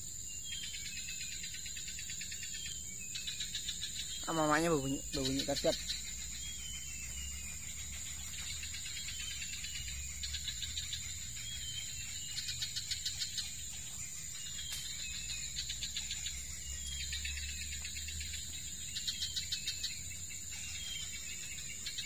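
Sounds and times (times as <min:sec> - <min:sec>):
bird ticking alarm calls: 0:00.0 - 0:22.0
high insect drone: 0:00.0 - 0:22.0.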